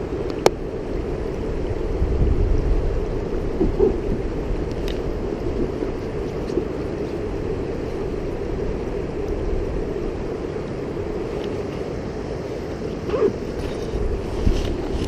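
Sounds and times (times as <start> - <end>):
creek water rushing over rocks: 0.0 - 15.0.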